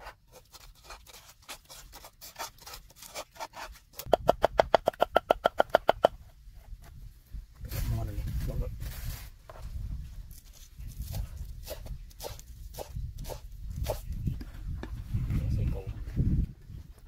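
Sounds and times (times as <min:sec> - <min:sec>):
stirring scrapes in clay mortar: 0:00.0 - 0:04.0.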